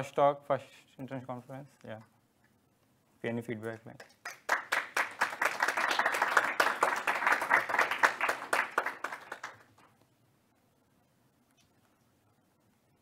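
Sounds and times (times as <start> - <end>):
audience applauding: 4.1 - 9.9.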